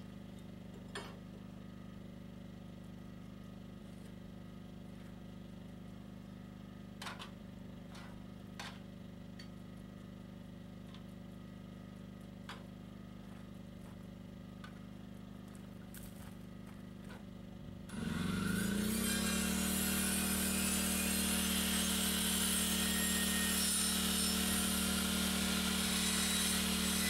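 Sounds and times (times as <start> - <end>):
low motor hum: 0.0 - 22.4
power tool spinning up: 17.9 - 27.0.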